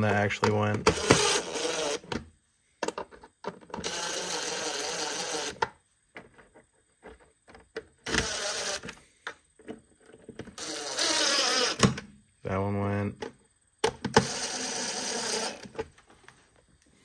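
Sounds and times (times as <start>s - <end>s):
cordless drill driving screws: 0.8s - 2.2s, 3.8s - 5.6s, 8.0s - 9.0s, 10.6s - 12.0s, 14.1s - 15.8s.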